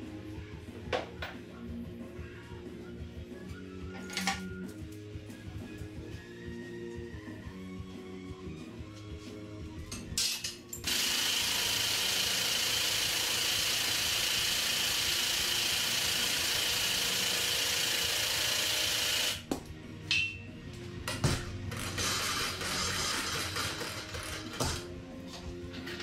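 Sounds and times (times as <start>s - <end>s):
power tool running: 10.8s - 19.5s.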